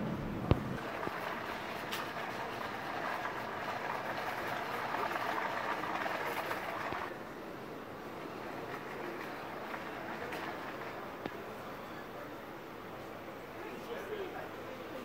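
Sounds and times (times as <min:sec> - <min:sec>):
shopping trolley wheels rolling: 0:00.8 - 0:07.1, 0:08.1 - 0:11.7.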